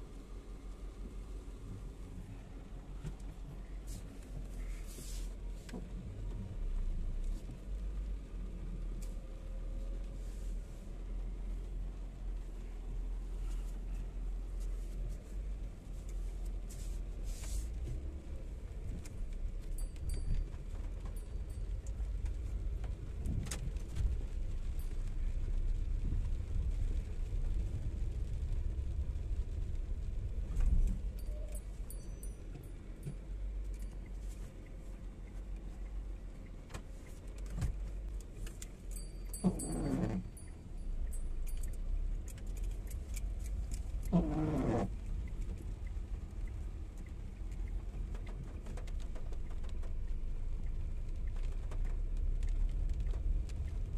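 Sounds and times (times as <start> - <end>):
car running low rumble: 0.0 - 53.9
light clicks and rattles: 30.2 - 53.9.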